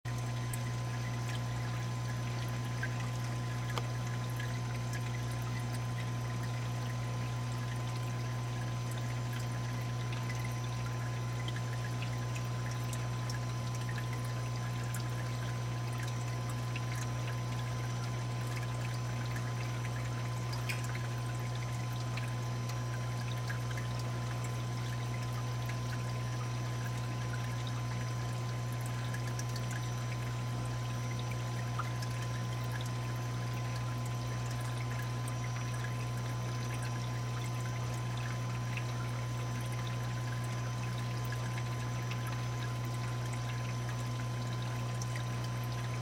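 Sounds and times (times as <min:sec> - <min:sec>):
water pouring and trickling: 0:00.1 - 0:46.0.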